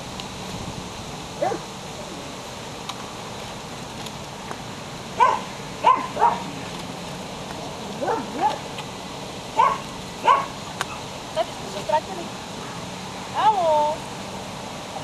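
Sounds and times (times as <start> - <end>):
puppy barking in high yaps: 1.4 - 1.7, 5.2 - 6.5, 8.0 - 8.6, 9.6 - 11.1.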